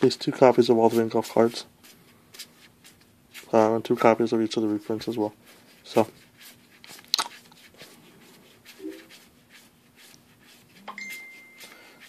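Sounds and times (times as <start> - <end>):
cards rustling: 0.6 - 12.0
faint high tone: 10.8 - 11.7.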